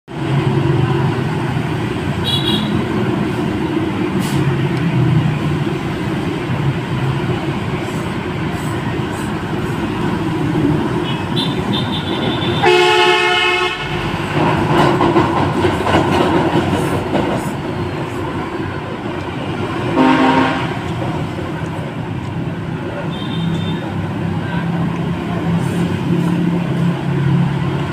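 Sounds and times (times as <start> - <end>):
traffic rumble: 0.1 - 27.9
car horn: 2.2 - 2.8, 11.0 - 14.1, 20.0 - 20.8, 23.1 - 23.9.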